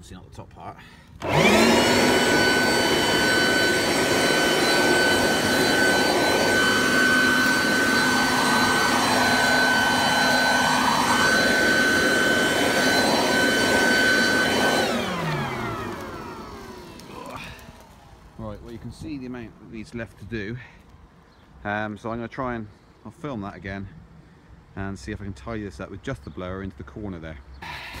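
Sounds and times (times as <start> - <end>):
leaf blower running: 1.2 - 18.7.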